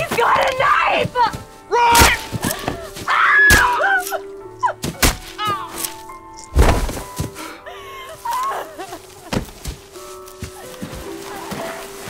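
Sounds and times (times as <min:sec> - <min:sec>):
sharp thuds and whacks: 0:01.9 - 0:02.8, 0:04.8 - 0:05.9, 0:06.5 - 0:07.3.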